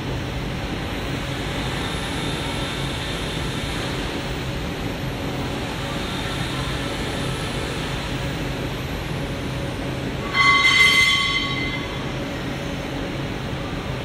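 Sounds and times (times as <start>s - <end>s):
machine whirring and humming: 0.0s - 14.0s
brief ringing tone: 10.2s - 12.1s.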